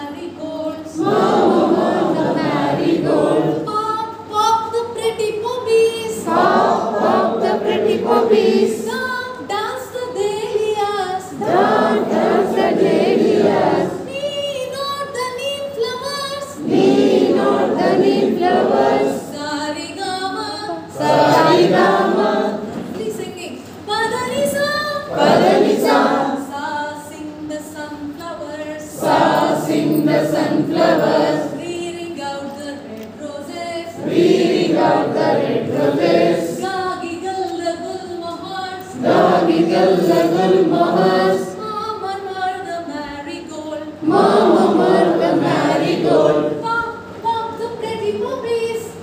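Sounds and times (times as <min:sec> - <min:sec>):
woman singing: 0:00.0 - 0:01.0, 0:03.5 - 0:12.2, 0:13.8 - 0:16.6, 0:18.4 - 0:21.2, 0:22.5 - 0:25.2, 0:25.9 - 0:34.0, 0:36.3 - 0:39.6, 0:41.3 - 0:44.0, 0:46.4 - 0:49.0
group singing together: 0:00.3 - 0:04.2, 0:05.7 - 0:09.5, 0:10.2 - 0:14.8, 0:15.9 - 0:23.0, 0:24.0 - 0:27.1, 0:28.6 - 0:42.9, 0:43.8 - 0:48.2.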